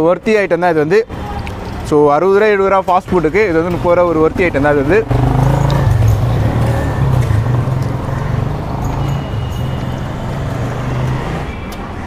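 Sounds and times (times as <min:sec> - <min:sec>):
street noise: 0:00.0 - 0:12.0
vehicle engine humming: 0:03.6 - 0:11.6.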